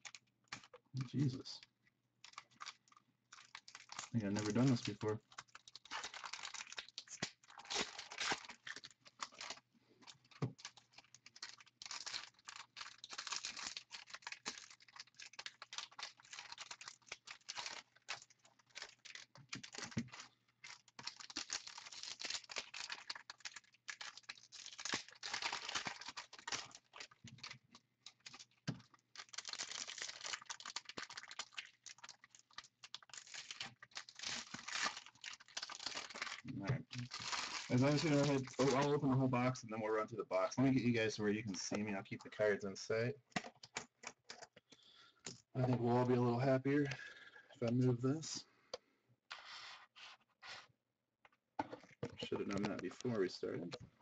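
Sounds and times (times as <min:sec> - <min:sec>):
plastic wrapping crinkling: 0:02.2 - 0:39.6, 0:51.6 - 0:53.8.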